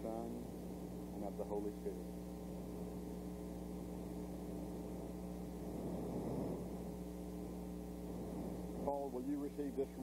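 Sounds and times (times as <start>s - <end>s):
low electrical hum with hiss: 0.0s - 10.0s.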